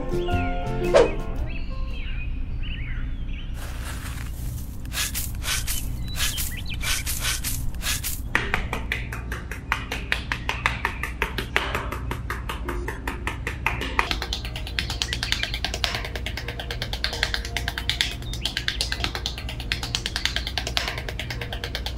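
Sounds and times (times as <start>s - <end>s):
rapid light tapping and clicking: 4.3s - 21.9s.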